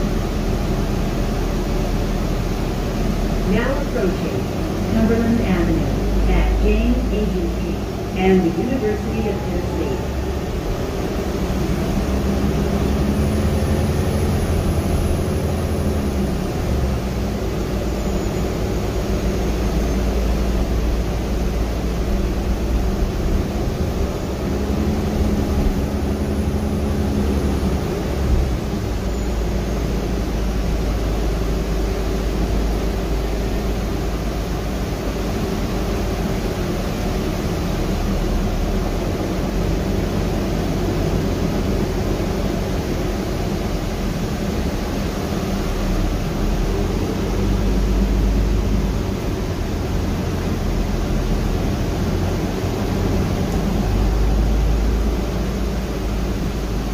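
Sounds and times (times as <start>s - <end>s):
faint high whine: 0.0s - 39.0s
bus drivetrain and road rumble: 0.0s - 56.9s.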